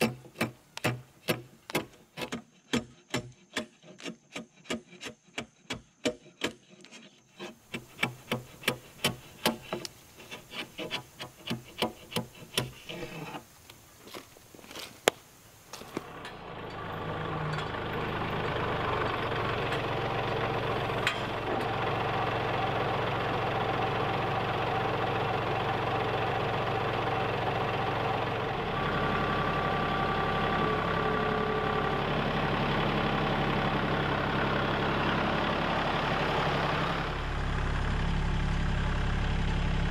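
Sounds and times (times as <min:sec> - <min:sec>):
tractor diesel engine running: 0:00.0 - 0:02.8, 0:07.5 - 0:39.9
chisel paring wooden beam: 0:00.0 - 0:13.4.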